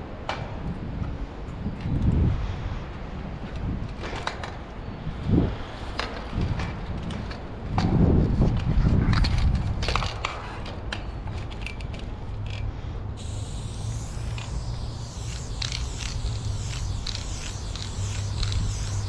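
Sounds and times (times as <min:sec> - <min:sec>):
spray paint can hissing: 0:13.2 - 0:19.0.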